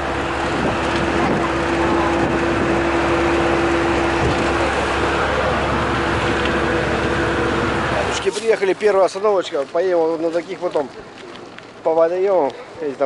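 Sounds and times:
droning tone: 0:00.0 - 0:08.3
bus engine and road noise: 0:00.0 - 0:13.0.

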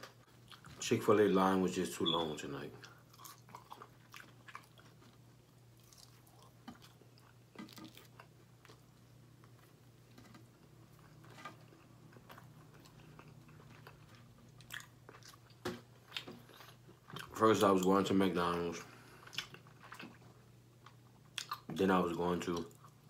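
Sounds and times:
person chewing crispy food: 0:00.0 - 0:00.8, 0:02.8 - 0:17.4, 0:19.0 - 0:21.7
faint low hum: 0:00.0 - 0:23.0.

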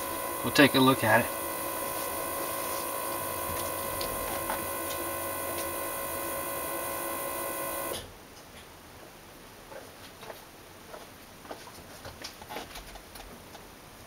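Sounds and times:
electric fuel pump whining: 0:00.0 - 0:08.1.

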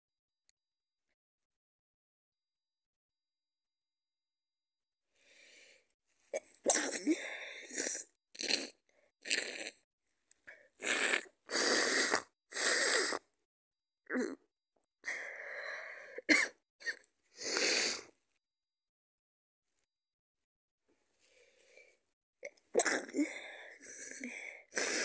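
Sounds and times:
woman coughing: 0:16.3 - 0:16.6.

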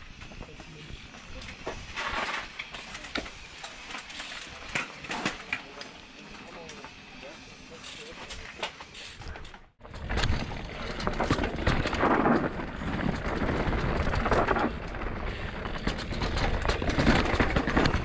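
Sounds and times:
bike rattling and clicking: 0:00.0 - 0:18.0
tyres on loose dirt: 0:00.0 - 0:18.0
wind buffeting microphone: 0:09.8 - 0:18.0.

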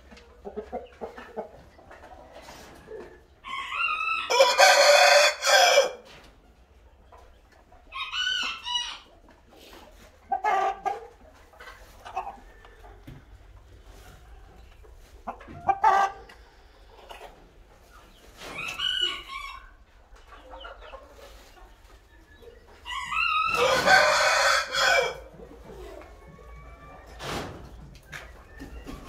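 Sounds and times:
chickens clucking: 0:00.0 - 0:29.0
rooster crowing: 0:03.7 - 0:06.0, 0:22.9 - 0:25.3.

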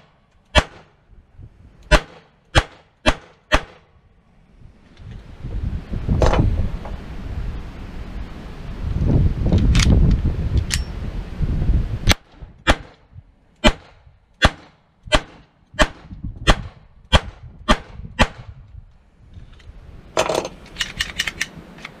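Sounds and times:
pistol shots: 0:00.5 - 0:00.9, 0:01.9 - 0:03.9
wind rumble on microphone: 0:01.0 - 0:01.9, 0:03.9 - 0:14.2, 0:15.0 - 0:22.0
gun clattering on bench: 0:20.2 - 0:21.5
pistol loading clicks: 0:20.4 - 0:22.0.

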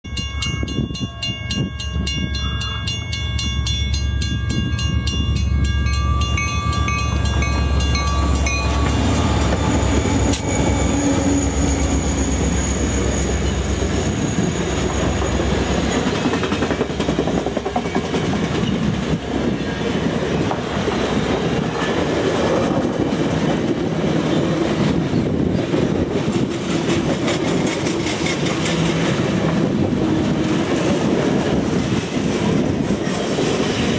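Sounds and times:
level crossing bell ringing: 0:00.0 - 0:09.2
diesel locomotive rumble: 0:03.4 - 0:33.9
train wheels clickety-clack: 0:06.7 - 0:33.9.

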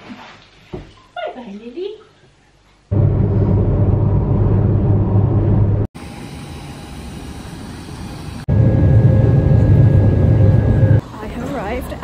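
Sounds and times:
jet airliner cabin drone: 0:02.9 - 0:11.2.

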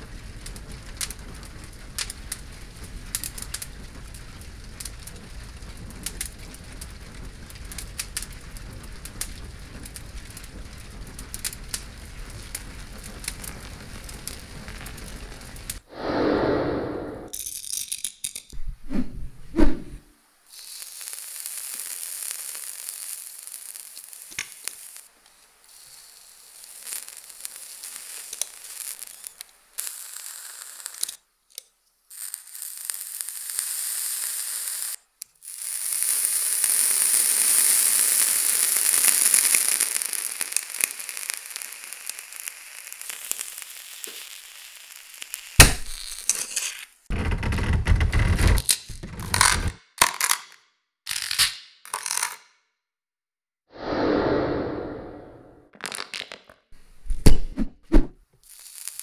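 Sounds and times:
hot knife melting plastic: 0:45.6 - 0:46.9.

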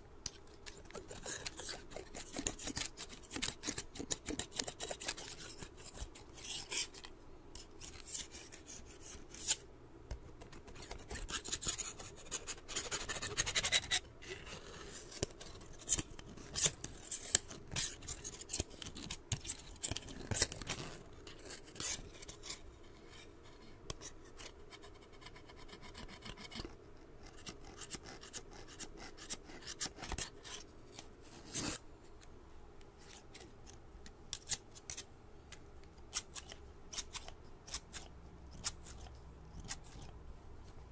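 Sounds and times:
scissors scraping: 0:00.2 - 0:09.6, 0:10.4 - 0:23.3, 0:25.8 - 0:31.8, 0:33.0 - 0:35.1, 0:36.0 - 0:40.2
scissors clicking and snipping: 0:36.1 - 0:40.1.

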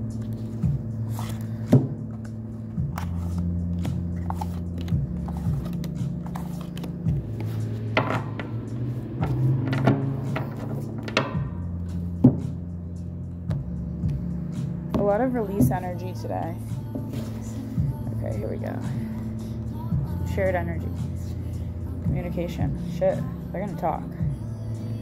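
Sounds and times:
soft background music: 0:00.0 - 0:25.0
cards riffling: 0:00.1 - 0:07.7.

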